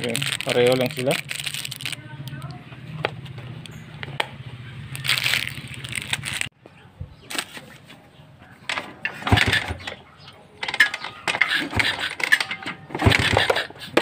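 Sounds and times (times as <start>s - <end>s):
motorcycle kick-starter turning engine over: 8.7s - 10.0s, 10.6s - 14.0s.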